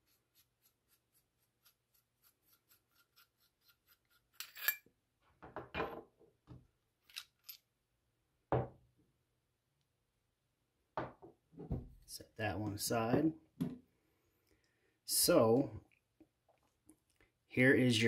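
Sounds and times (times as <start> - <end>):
metal parts clinking: 4.4 - 4.8.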